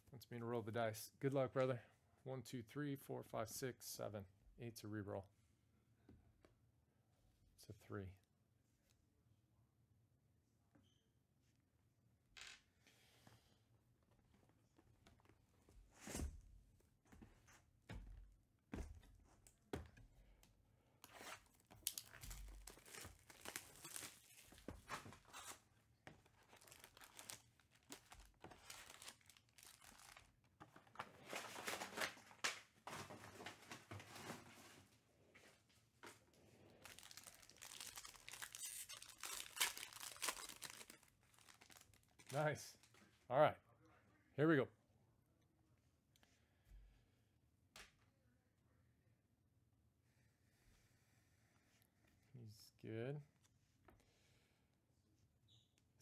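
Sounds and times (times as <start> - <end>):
wrapping tearing: 21.0 - 25.6, 26.3 - 30.3, 36.8 - 42.4
foil packs crinkling: 21.8 - 25.6, 26.2 - 33.7, 36.8 - 42.4.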